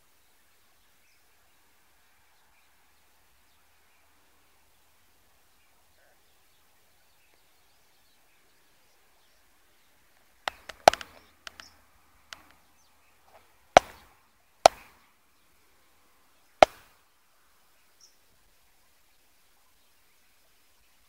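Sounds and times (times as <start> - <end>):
sharp short knocks: 10.5 - 11.7, 13.3 - 14.9, 16.6 - 16.9.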